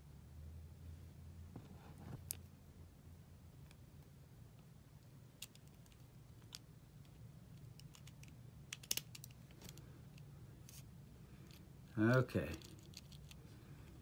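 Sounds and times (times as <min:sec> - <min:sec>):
low steady hum: 0:00.0 - 0:14.0
lighter metal parts clicking: 0:05.4 - 0:10.8.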